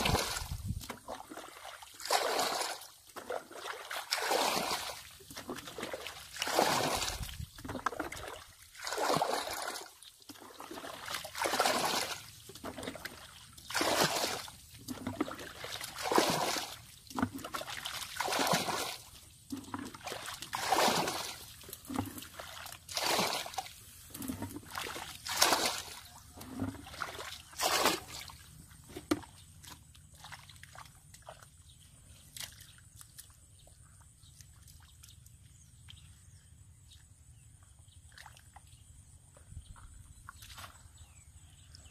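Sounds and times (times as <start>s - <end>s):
water sloshing pour: 0.0s - 31.3s
bucket scooping water: 0.0s - 36.0s.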